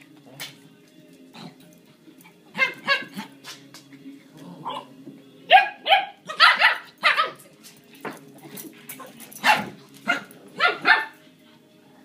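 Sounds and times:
dog barking: 0:02.6 - 0:03.2, 0:05.5 - 0:07.4, 0:09.4 - 0:11.2.

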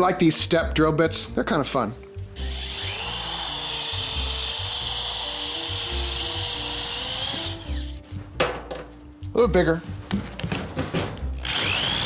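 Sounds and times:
background music: 0:00.0 - 0:12.0
power drill cutting steel: 0:02.4 - 0:08.0, 0:11.4 - 0:12.0.

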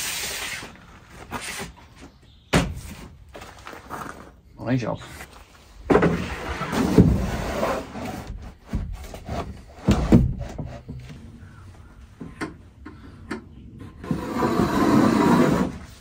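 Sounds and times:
wood scraping on wood: 0:13.8 - 0:16.0.

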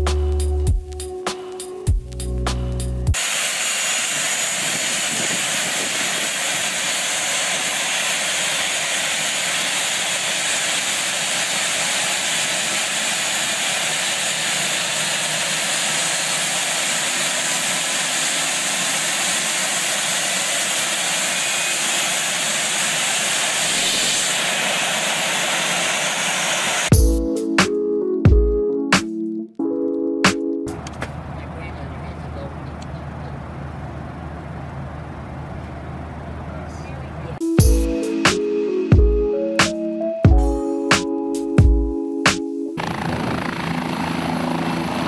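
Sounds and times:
high engine whine: 0:02.2 - 0:27.0, 0:30.7 - 0:37.8, 0:42.8 - 0:45.0
jet engine running: 0:03.1 - 0:27.0, 0:42.8 - 0:45.0.

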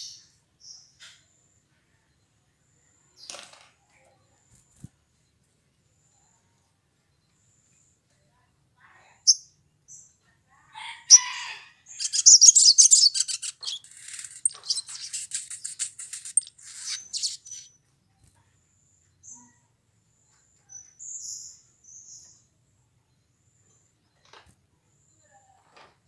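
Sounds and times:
short bird calls: 0:11.1 - 0:17.7
sunbird twittering song: 0:11.1 - 0:17.8.

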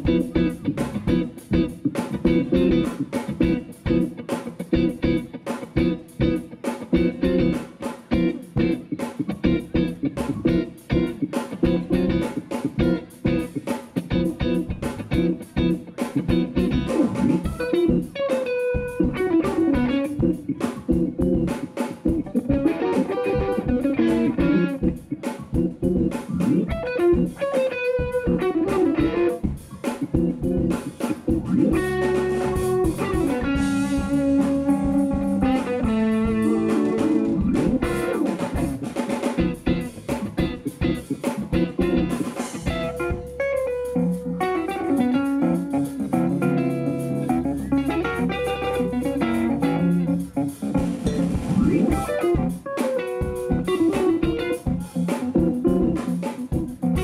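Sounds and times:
electric guitar: 0:00.0 - 0:57.0
jazz-funk band playing: 0:00.0 - 0:57.0.

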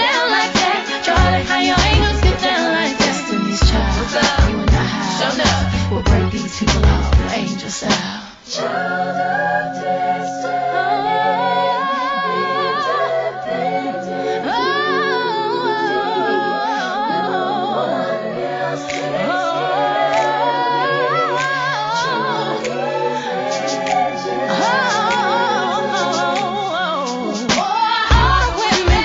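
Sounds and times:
hip-hop track: 0:00.0 - 0:08.2, 0:18.5 - 0:29.0
voices singing held notes: 0:00.0 - 0:29.0.

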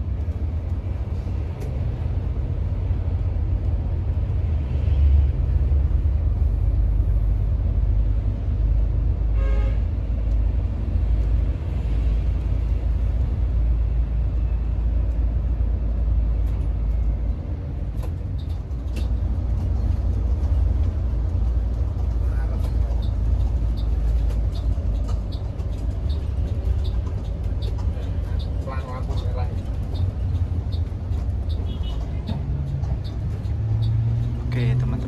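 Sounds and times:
coach engine and road rumble: 0:00.0 - 0:35.0
vehicle horn: 0:09.3 - 0:09.9, 0:31.6 - 0:32.0.

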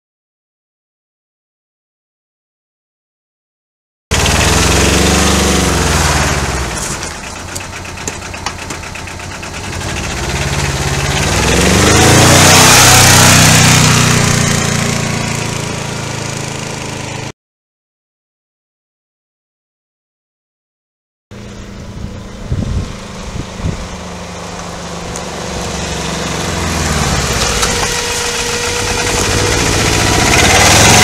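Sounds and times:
diesel quad bike engine: 0:04.1 - 0:17.3, 0:21.3 - 0:31.0.

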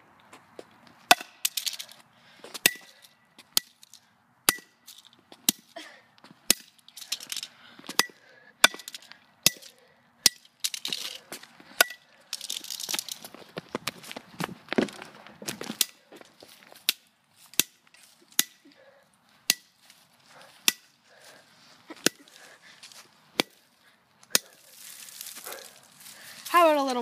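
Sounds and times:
scuffing and scraping: 0:00.2 - 0:04.0, 0:10.6 - 0:27.0.

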